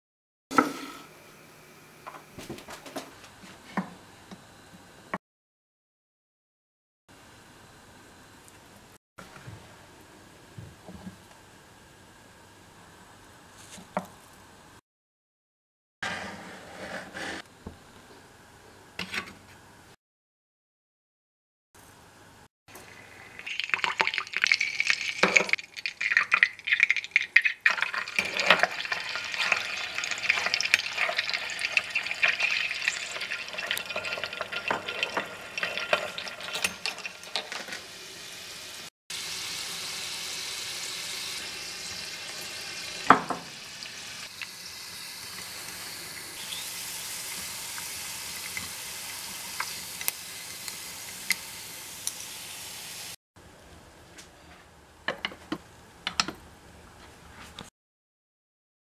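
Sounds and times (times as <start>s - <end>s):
oil sizzling and popping: 22.7s - 53.2s.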